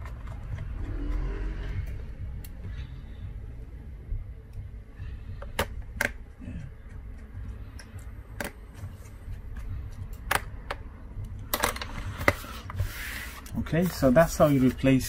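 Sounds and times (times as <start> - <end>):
low steady hum: 0.0 - 15.0
laptop handling scraping and rustling: 11.8 - 15.0.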